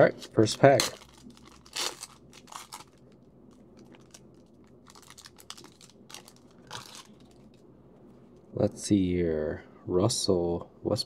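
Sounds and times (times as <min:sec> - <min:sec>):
foil wrapper crinkling: 0:00.3 - 0:07.6.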